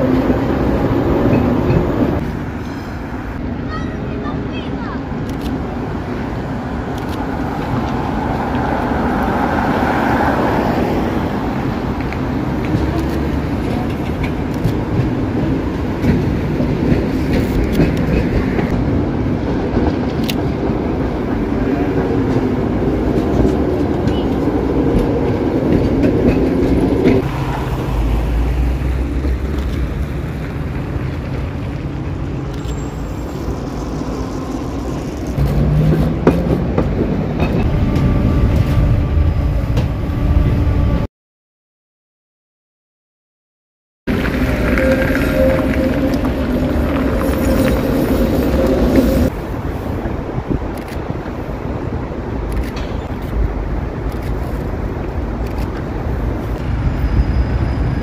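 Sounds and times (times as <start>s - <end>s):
tram motor hum: 5.1s - 41.1s, 44.1s - 51.0s.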